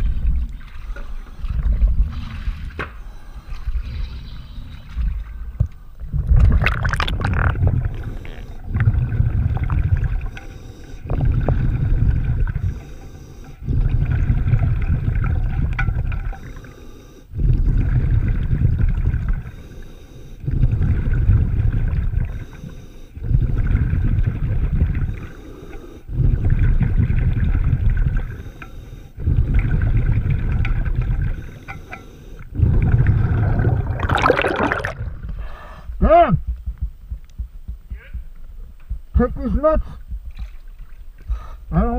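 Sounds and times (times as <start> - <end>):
bubbling of exhaled air: 0.0 - 36.0
diver breathing through regulator: 6.9 - 14.8, 16.1 - 18.1, 19.3 - 21.4, 22.1 - 24.1, 24.7 - 27.1, 28.0 - 36.0, 41.2 - 41.7.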